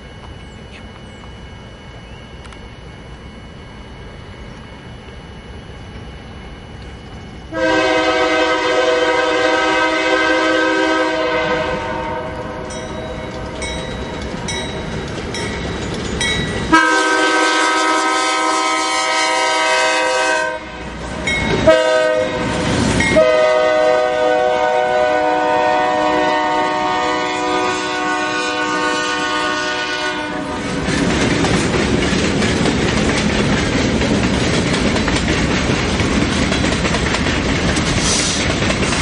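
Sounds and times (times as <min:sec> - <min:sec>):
locomotive air horn blasts: 0:07.5 - 0:12.7, 0:16.7 - 0:21.0, 0:21.6 - 0:30.6
freight cars clacking over rails: 0:12.8 - 0:16.7, 0:30.6 - 0:39.0.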